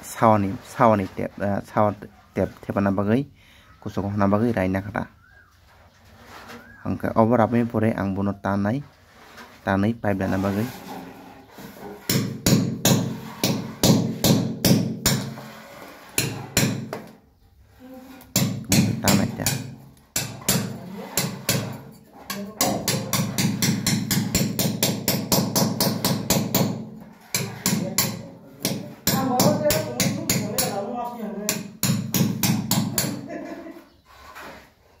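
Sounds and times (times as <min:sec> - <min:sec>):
hammer striking chisel on tile: 0:12.0 - 0:15.4, 0:16.2 - 0:17.1, 0:18.3 - 0:30.9, 0:31.5 - 0:33.3.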